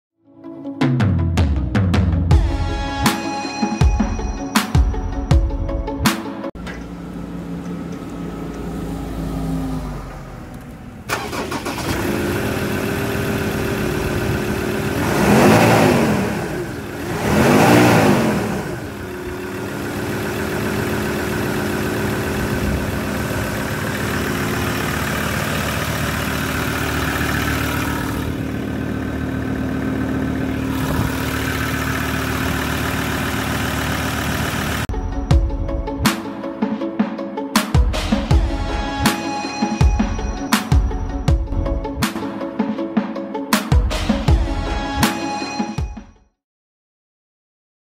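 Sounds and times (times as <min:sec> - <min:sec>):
diesel engine starting and idling: 0:06.5 - 0:36.1
engine revving: 0:06.7 - 0:34.9.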